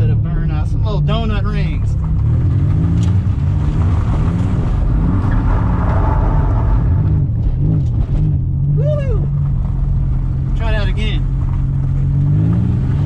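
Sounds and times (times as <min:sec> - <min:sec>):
car engine revving hard: 0:10.6 - 0:13.0.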